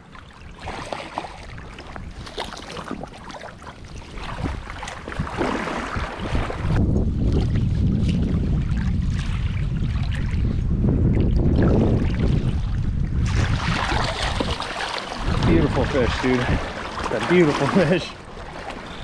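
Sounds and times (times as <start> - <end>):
wind rumble on microphone: 0.0 - 19.0
fish splashing in water: 0.6 - 6.7, 13.2 - 19.0.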